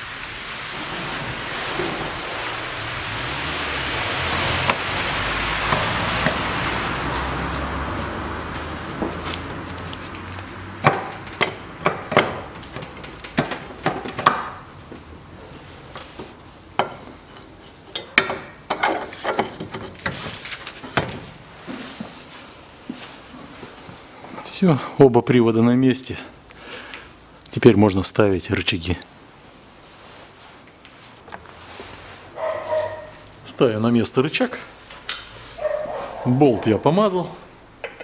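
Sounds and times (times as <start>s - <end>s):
steady hiss: 0.0s - 8.1s
metallic knocks and clicks: 10.8s - 14.5s, 37.8s - 38.0s.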